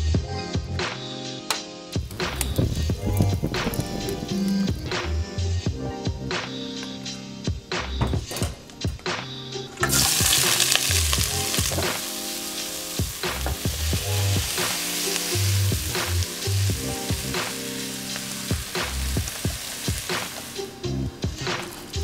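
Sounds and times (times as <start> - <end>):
onion sizzling in hot oil: 9.8 - 22.0.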